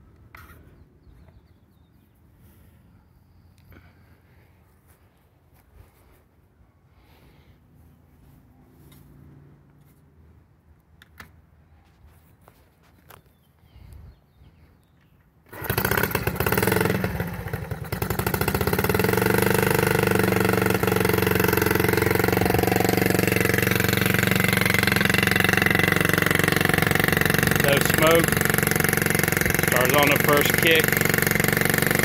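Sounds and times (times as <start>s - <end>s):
motorcycle engine starting and idling: 15.2s - 32.0s.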